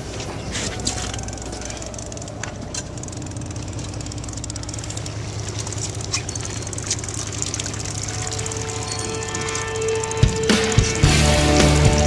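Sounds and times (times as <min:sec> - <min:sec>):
boat engine running: 0:00.0 - 0:12.0
water noise: 0:00.0 - 0:12.0
wind: 0:00.0 - 0:12.0
steady musical tone: 0:07.9 - 0:12.0.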